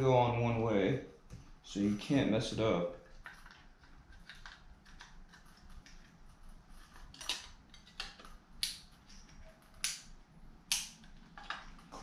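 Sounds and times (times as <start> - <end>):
plastic clicks and rattles: 7.1 - 12.0.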